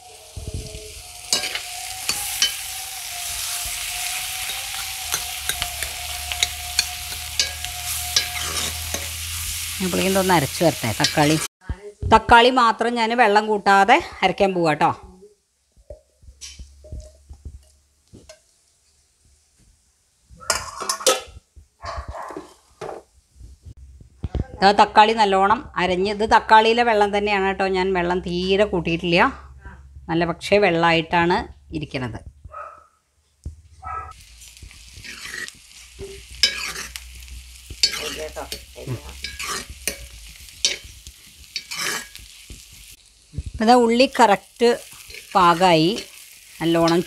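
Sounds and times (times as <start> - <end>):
onions sizzling in oil: 0.0 - 11.5, 12.2 - 21.7, 34.1 - 47.0
spoon scraping pan: 0.7 - 11.5, 20.4 - 21.4, 34.2 - 42.9, 44.1 - 47.0.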